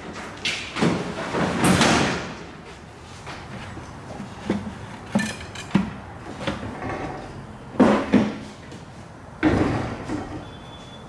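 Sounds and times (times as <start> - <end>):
heavy metal parts clunking: 3.3 - 8.6.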